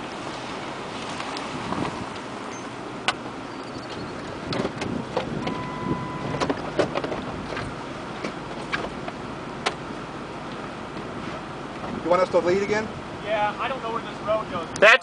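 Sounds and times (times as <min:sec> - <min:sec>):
wind on microphone: 0:00.7 - 0:02.6, 0:03.8 - 0:07.9
steady beep: 0:05.4 - 0:06.4.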